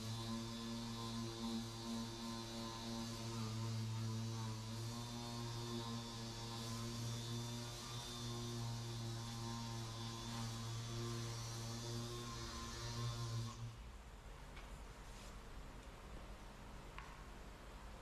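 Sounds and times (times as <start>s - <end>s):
air sander humming: 0.0s - 13.8s.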